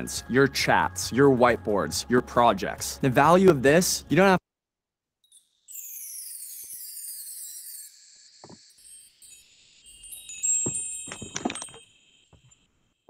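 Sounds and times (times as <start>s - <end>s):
ringing chime tones: 5.2s - 12.7s
high falling shimmer: 5.3s - 11.1s.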